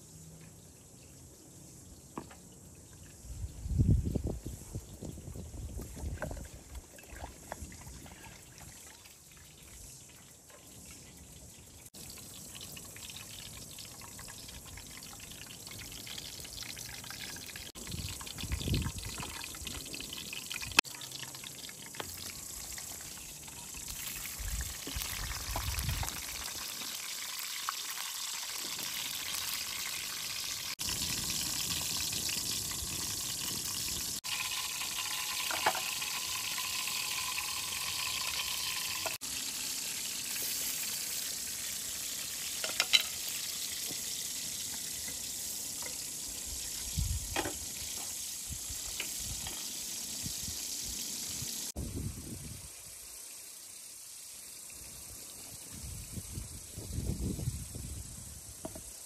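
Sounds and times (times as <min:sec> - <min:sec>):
liquid pouring and trickling: 0:04.8 - 0:51.8.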